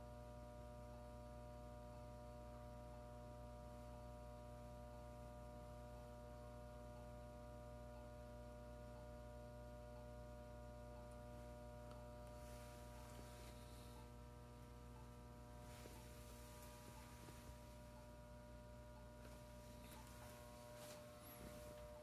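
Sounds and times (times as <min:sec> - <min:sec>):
electrical mains hum: 0:00.0 - 0:22.0
soft hiss: 0:10.2 - 0:22.0.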